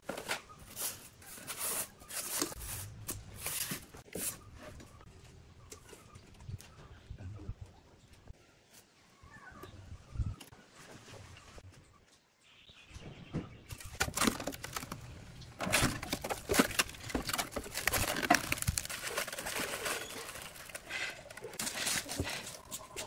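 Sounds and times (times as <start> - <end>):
plastic film peeling and crackling: 13.7 - 23.0.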